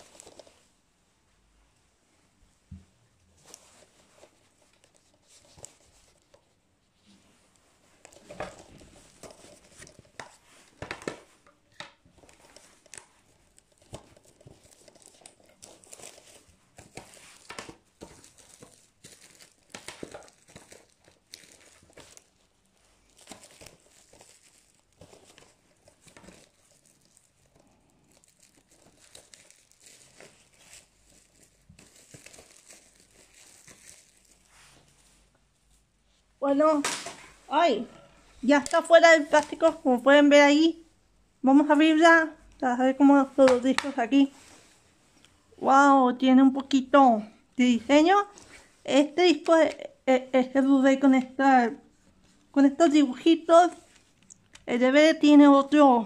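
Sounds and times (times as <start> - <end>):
plastic wrap crinkling and tearing: 0.0 - 0.7, 3.4 - 6.6, 7.8 - 35.3, 38.4 - 40.0.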